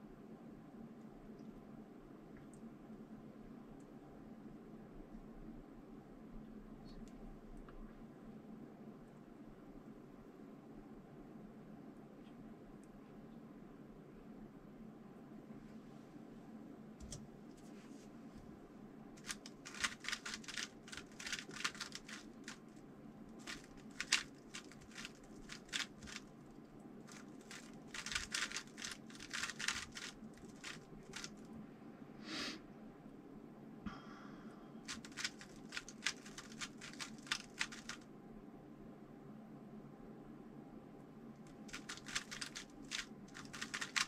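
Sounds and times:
plastic puzzle cube clicking: 19.2 - 22.6, 23.4 - 26.3, 27.1 - 31.4, 34.9 - 38.0, 41.5 - 44.0
short hiss: 32.2 - 32.6.

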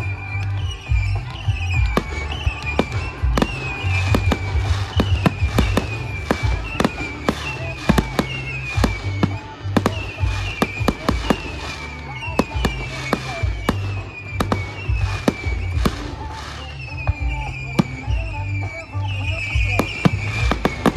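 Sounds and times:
fireworks launching and bursting: 0.0 - 20.9
music: 0.0 - 20.9.

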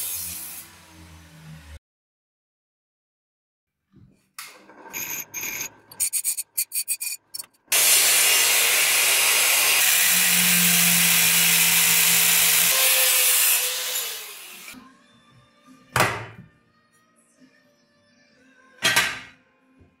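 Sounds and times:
bench grinder on steel: 4.5 - 14.8
angle grinder cutting steel: 4.6 - 14.8.

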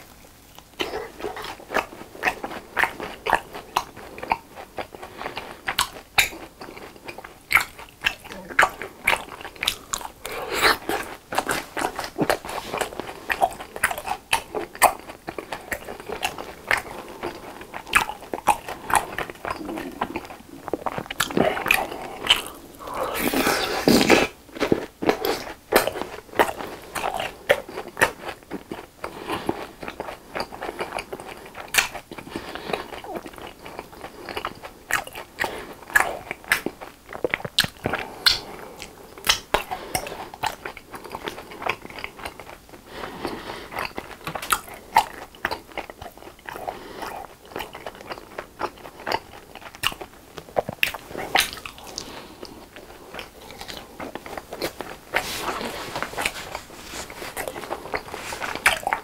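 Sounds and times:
crunchy chewing: 0.0 - 59.0.

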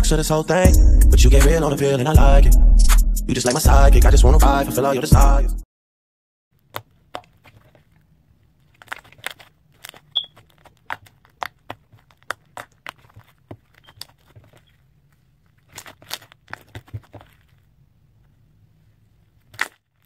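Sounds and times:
slime clicking and popping: 8.8 - 14.3.

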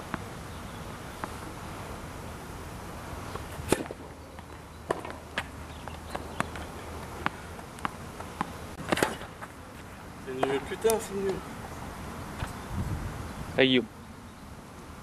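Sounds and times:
tennis ball bouncing: 1.1 - 1.4, 3.3 - 11.2
tennis racket strikes: 3.4 - 4.1, 4.9 - 9.5.

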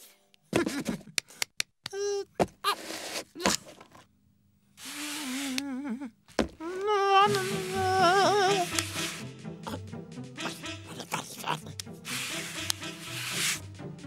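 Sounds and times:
cartoon voice humming: 4.9 - 8.9, 9.6 - 9.8, 10.4 - 13.0
background music with bass: 7.3 - 14.0
sled sliding on snow: 12.1 - 13.6.

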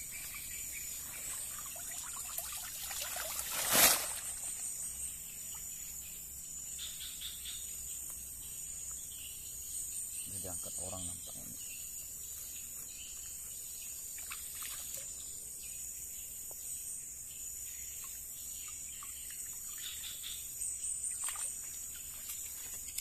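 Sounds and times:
faint water splashes: 0.0 - 4.6, 14.1 - 15.2, 21.1 - 23.0
insects droning: 0.0 - 23.0.

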